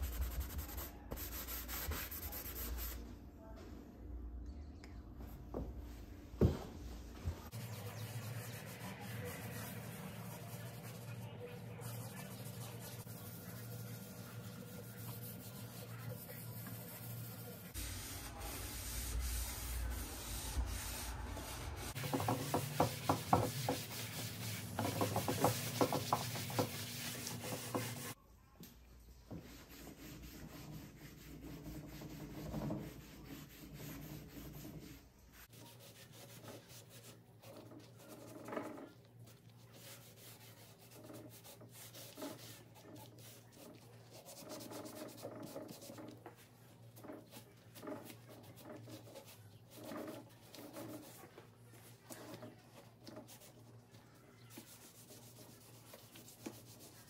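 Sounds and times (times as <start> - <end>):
sanding wood by hand: 0.0 - 3.0, 11.9 - 28.2, 29.5 - 37.2.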